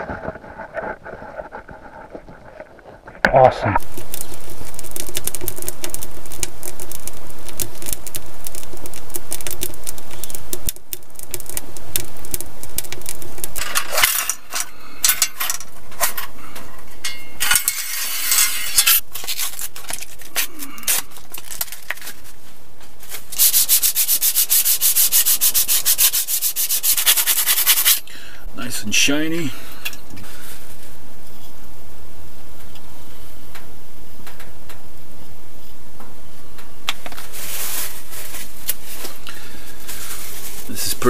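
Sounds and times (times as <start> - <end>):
wood fire crackling: 0.0 - 41.0
cloth scraping saw blade: 23.4 - 28.0.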